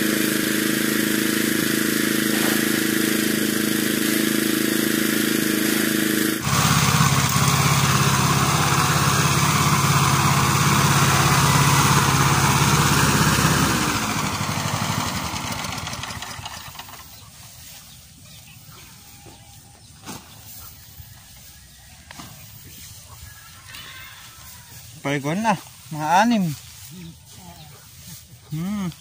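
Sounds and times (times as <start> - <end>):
small gasoline engine running: 0.0 - 18.4.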